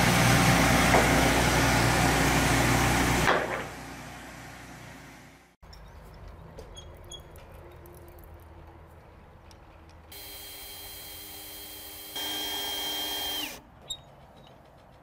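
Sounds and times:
power tool motor whining: 10.2 - 13.6.

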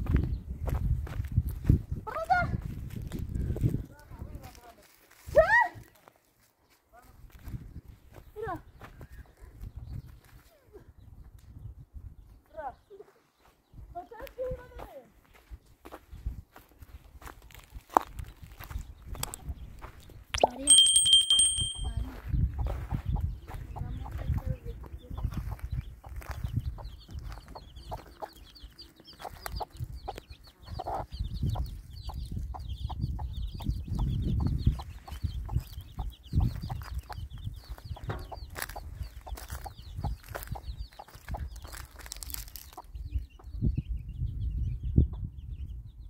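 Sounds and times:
fast high chirping: 20.4 - 22.1
short high steady tone: 20.4 - 22.1
chickens clucking: 22.6 - 43.5.

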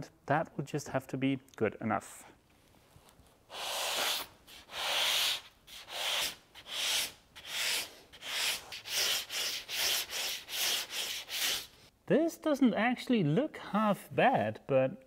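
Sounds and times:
sandpaper scratching strokes: 3.5 - 11.8.

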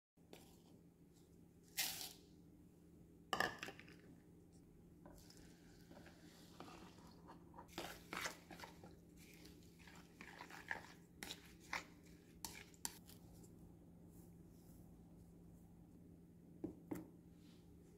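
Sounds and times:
spatula stirring and scraping bowl: 5.1 - 13.4.

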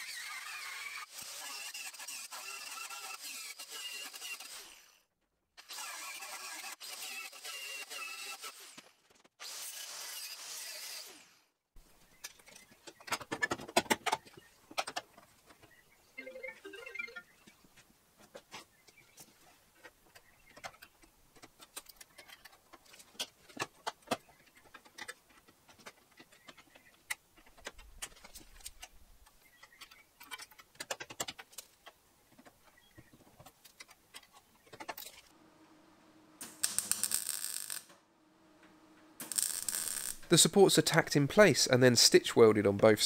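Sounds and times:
electric welding bursts: 36.4 - 38.0, 39.2 - 40.6.

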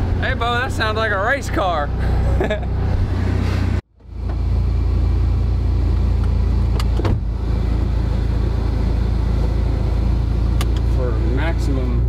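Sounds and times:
car engine idling: 4.0 - 12.0.

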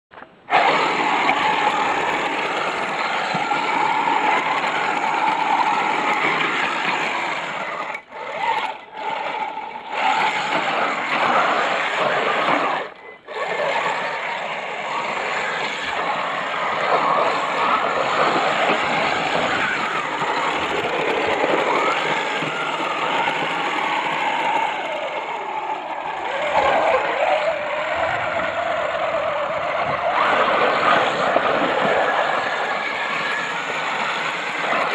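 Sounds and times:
electric motor whine: 0.2 - 34.9.

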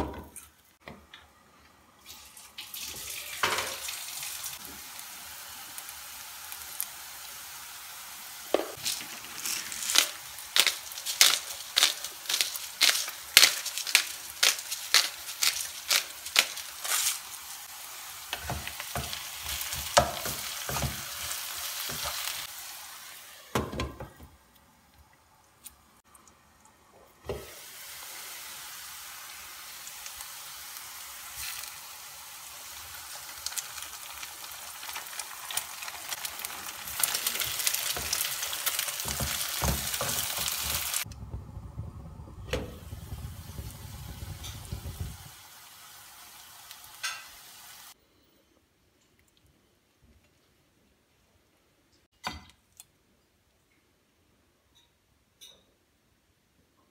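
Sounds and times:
potatoes sizzling in oil: 2.2 - 24.2, 27.2 - 41.1, 42.6 - 48.0
thump: 41.3 - 43.0.

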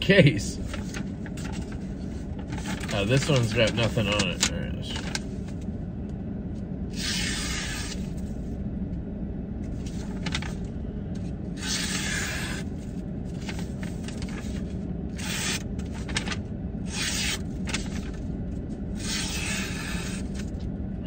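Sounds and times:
steady low hum: 0.0 - 21.0
knife slicing paper: 19.0 - 20.4.

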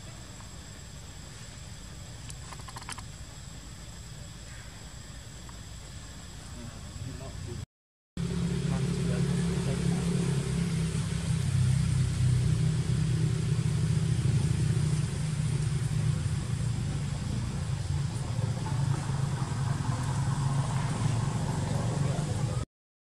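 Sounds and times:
low engine rumble: 8.2 - 22.7.

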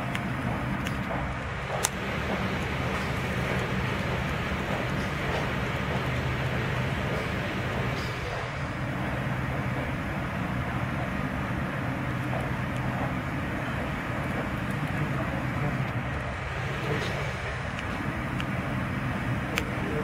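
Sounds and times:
terminal background rumble: 0.0 - 20.0.

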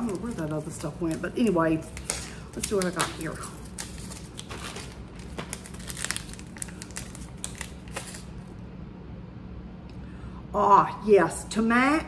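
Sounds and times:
packaging crinkling: 0.0 - 8.6.

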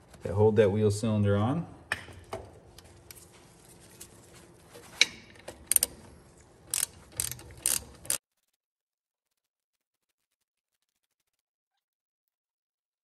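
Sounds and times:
ratchet wrench clicking: 5.7 - 6.0, 6.7 - 8.2.

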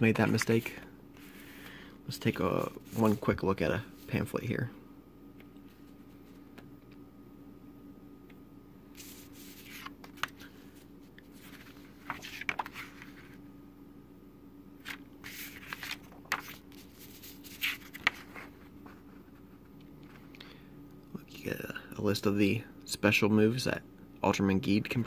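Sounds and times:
faint steady hum: 0.0 - 25.0
paper pages rustling: 2.2 - 4.2, 9.0 - 13.4, 14.8 - 20.2.

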